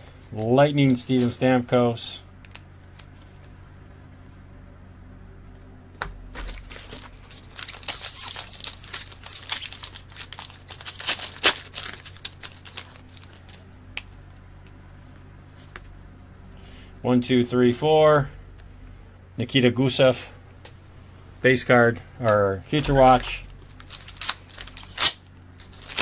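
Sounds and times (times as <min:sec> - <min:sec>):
wrapper tearing and crinkling: 0:06.4 - 0:13.6, 0:23.1 - 0:26.0.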